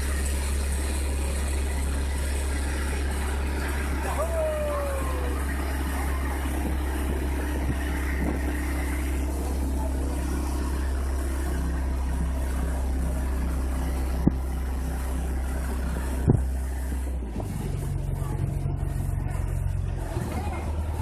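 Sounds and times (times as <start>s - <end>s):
boat engine droning: 0.0s - 21.0s.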